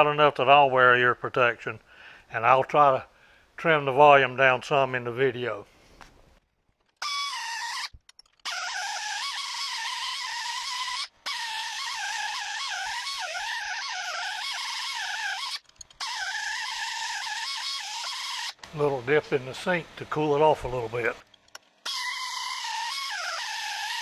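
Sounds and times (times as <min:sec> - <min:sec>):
pneumatic air sander whining: 0:07.0 - 0:18.9, 0:21.2 - 0:24.0.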